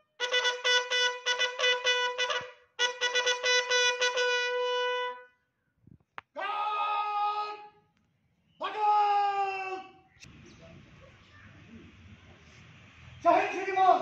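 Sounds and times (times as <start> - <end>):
bugle call: 0.0 - 5.4
shouted parade command: 6.3 - 7.8, 8.6 - 10.0, 13.2 - 14.0.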